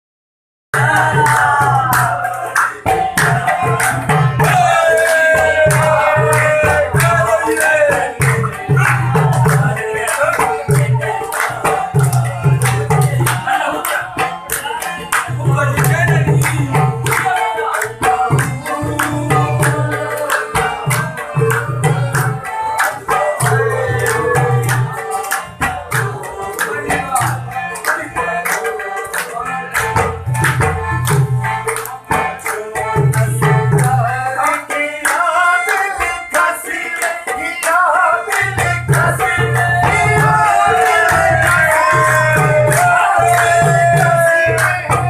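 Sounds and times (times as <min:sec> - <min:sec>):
person singing: 0:15.9 - 0:27.2.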